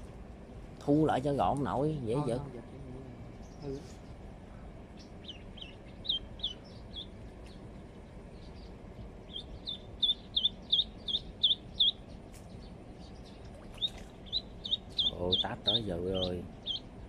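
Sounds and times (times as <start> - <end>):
duckling peeping: 4.9 - 17.0.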